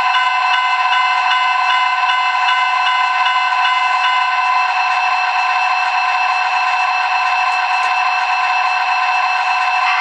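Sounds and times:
diesel engine idle from small speaker: 0:09.7 - 0:10.0.

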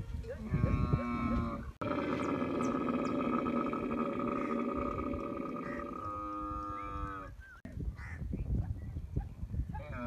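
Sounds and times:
camel calling: 0:00.4 - 0:07.4.

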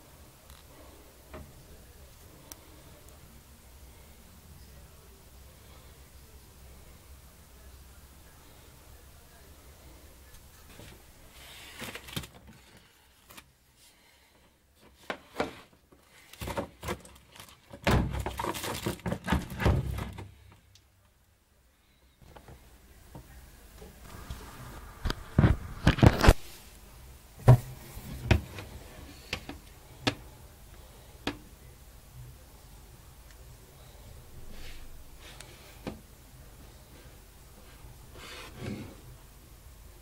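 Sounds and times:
tool case handling knocks and rattles: 0:17.7 - 0:20.3.

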